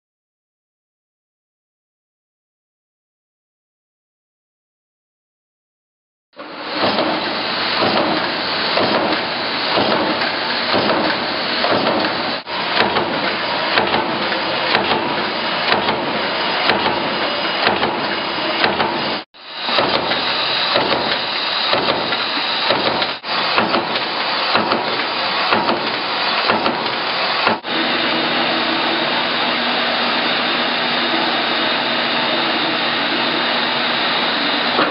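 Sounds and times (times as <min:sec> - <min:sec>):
machine low hum: 0:06.4 - 0:34.9
stamping press clattering: 0:06.7 - 0:19.1, 0:19.7 - 0:27.6.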